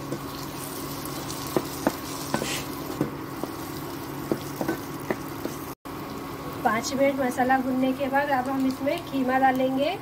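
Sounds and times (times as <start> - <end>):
food sizzling in oil: 0.0 - 9.8
spatula tapping pan: 1.4 - 3.6, 4.2 - 5.6.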